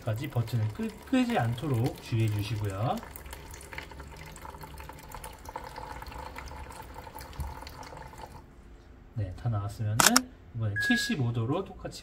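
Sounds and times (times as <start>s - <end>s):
water pouring into plastic jug: 0.0s - 8.4s.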